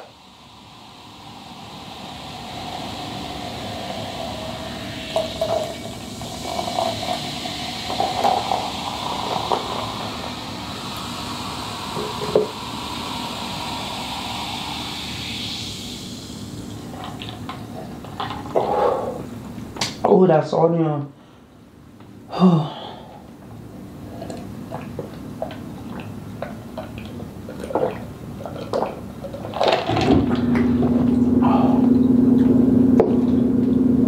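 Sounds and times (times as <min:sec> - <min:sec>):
person drinking: 0:00.0 - 0:19.3, 0:24.0 - 0:32.1
soda pouring and fizzing: 0:00.0 - 0:19.3, 0:24.0 - 0:31.6.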